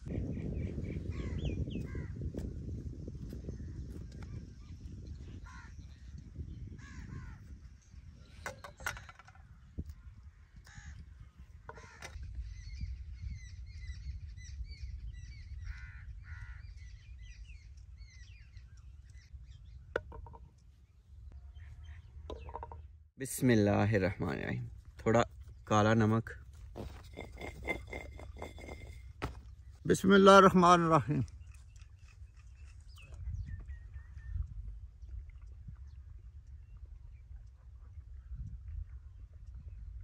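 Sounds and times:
small birds chirping: 0.1 - 2.4, 3.3 - 22.9, 31.2 - 40.0
crows cawing: 11.7 - 12.2, 15.7 - 16.7.

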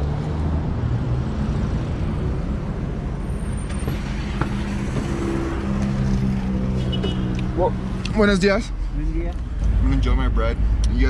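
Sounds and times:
car engine humming: 0.0 - 11.0
street traffic: 0.0 - 11.0.

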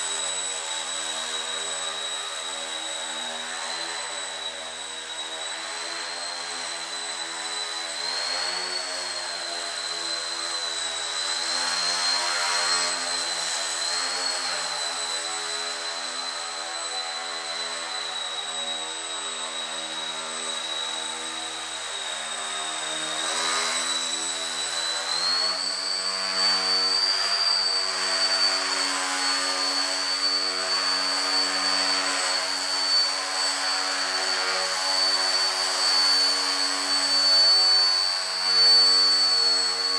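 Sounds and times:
rc plane motor whine: 0.0 - 39.9.

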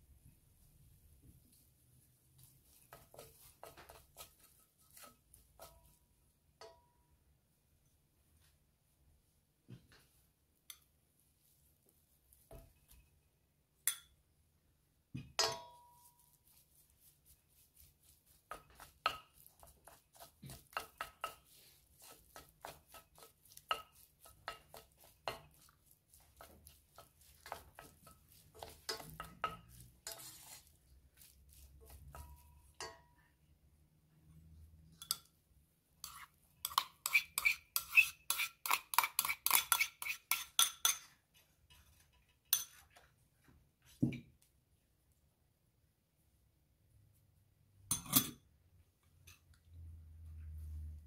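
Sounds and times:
utensils clinking on pan and bowl: 2.7 - 6.9, 15.2 - 16.3, 17.8 - 33.2, 34.9 - 35.4, 36.0 - 43.1, 47.9 - 48.5.

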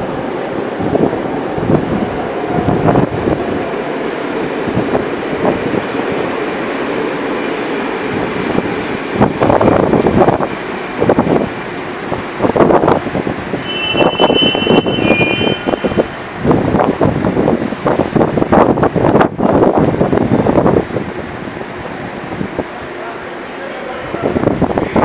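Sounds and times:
train wheels rumbling on track: 0.0 - 25.0.

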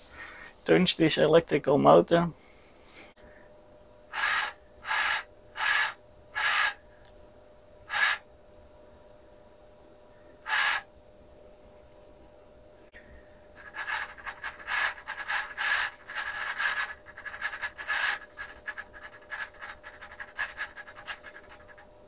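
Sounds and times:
faint steady hum: 0.0 - 22.0
scratchy rubbing of motor brush: 4.1 - 6.8, 7.9 - 8.2, 10.5 - 10.8, 13.6 - 21.8.

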